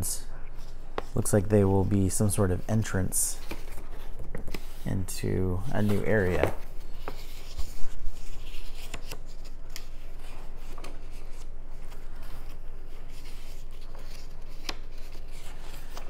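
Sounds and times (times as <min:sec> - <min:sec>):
rubbing and rustling of cards: 0:00.0 - 0:16.0.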